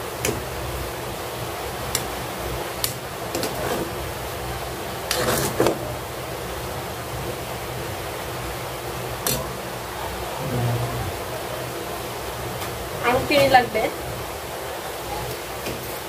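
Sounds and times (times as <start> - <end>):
steady hiss: 0.0 - 16.0
spatula scraping a pan: 3.4 - 3.9, 5.1 - 5.8.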